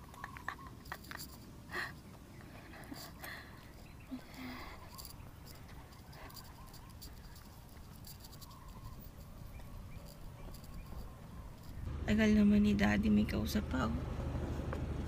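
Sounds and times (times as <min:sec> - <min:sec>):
light ticks and scratches: 0:00.0 - 0:11.9.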